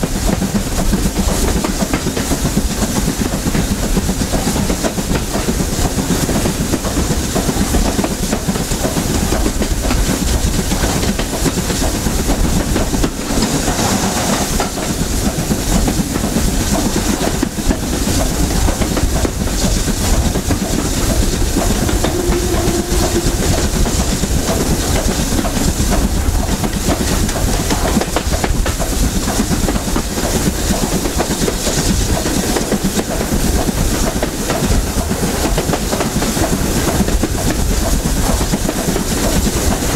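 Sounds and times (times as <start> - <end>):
carriage wheels on rails: 0.0 - 39.9
steam locomotive running: 0.0 - 39.9.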